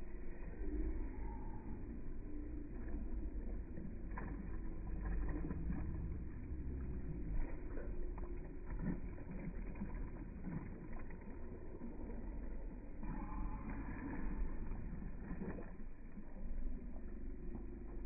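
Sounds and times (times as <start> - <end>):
low steady rumble: 0.0 - 18.0
children splashing in pool: 2.7 - 16.9.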